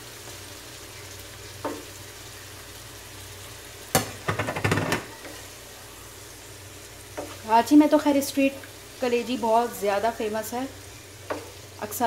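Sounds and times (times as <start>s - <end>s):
food sizzling in a pan: 0.0s - 12.0s
wooden spoon knocking on pan: 1.6s - 1.9s, 3.9s - 5.4s.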